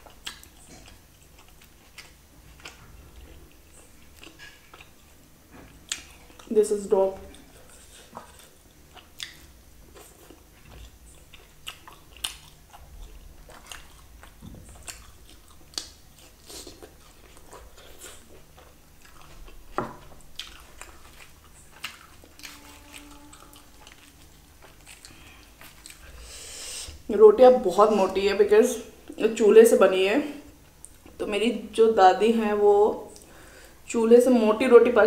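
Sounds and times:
chewing and biting food: 0.0s - 6.5s, 7.2s - 26.2s.

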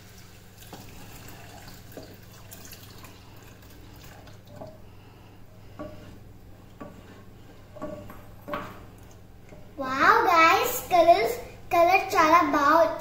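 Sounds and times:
milk pouring into saucepan: 0.0s - 4.9s
wooden spoon stirring: 0.6s - 11.1s
steady low hum: 0.8s - 12.2s.

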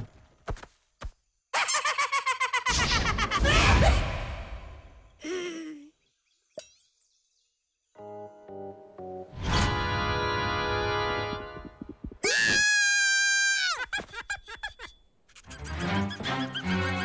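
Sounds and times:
high-pitched cartoon scream: 12.2s - 13.8s.

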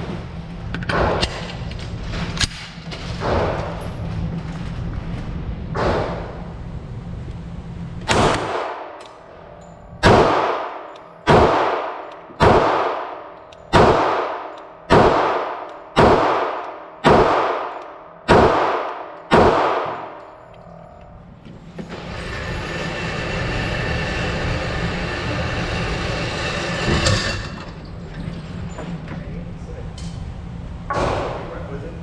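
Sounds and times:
low steady hum: 0.0s - 32.0s
pistol shots echoing indoors: 8.0s - 20.4s.

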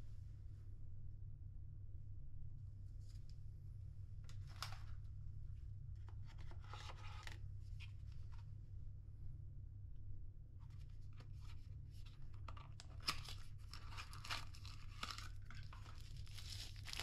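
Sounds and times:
steady low hum: 0.0s - 17.0s
paper packets rustling: 4.3s - 5.0s, 6.0s - 8.4s, 10.7s - 17.0s.

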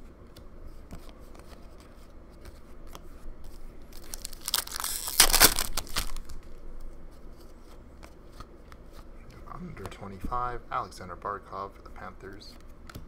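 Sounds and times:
foil wrapper ripping: 3.9s - 6.4s.

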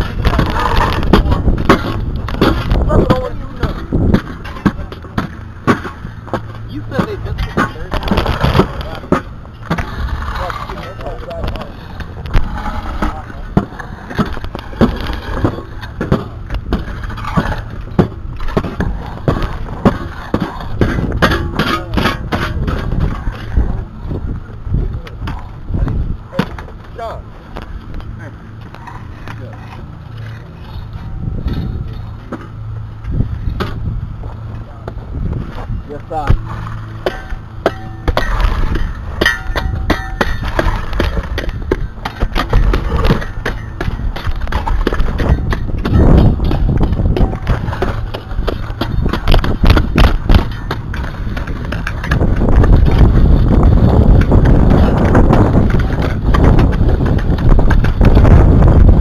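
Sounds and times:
low rumble: 0.0s - 59.0s
metal shovel clanging on rocky dirt: 37.0s - 41.2s.

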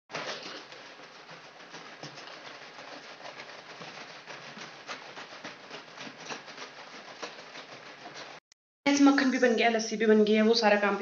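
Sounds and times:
liquid sloshing in shaken bottle: 0.1s - 8.4s.

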